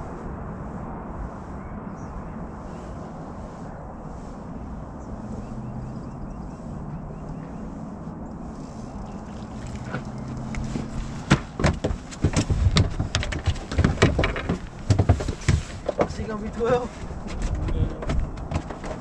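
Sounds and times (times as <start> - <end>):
fish splashing at surface: 9.0 - 11.0.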